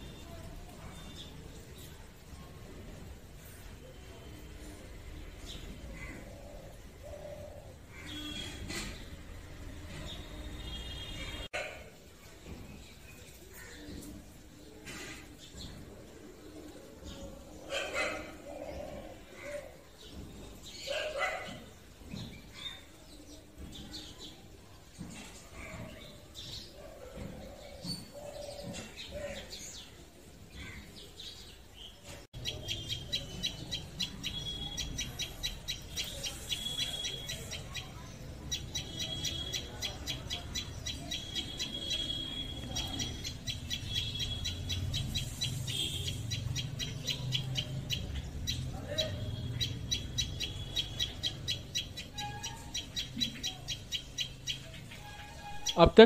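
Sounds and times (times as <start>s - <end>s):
bird chirping: 32.4s - 37.8s.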